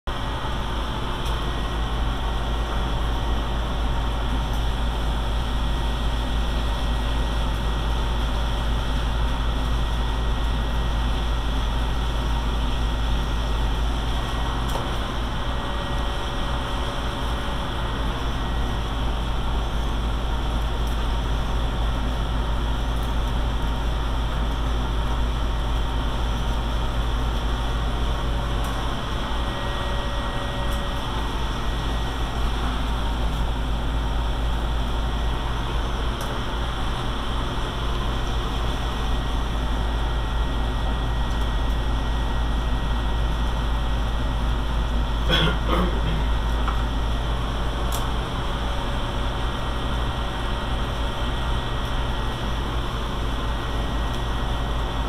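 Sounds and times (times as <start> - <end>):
machinery rumbling: 45.2 - 48.3.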